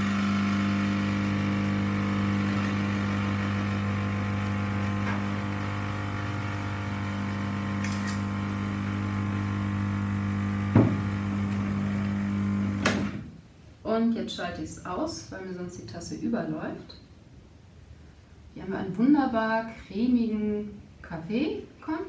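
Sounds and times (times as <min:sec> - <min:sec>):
espresso machine pump humming: 0:00.0 - 0:12.8
sharp knock: 0:10.7 - 0:11.0.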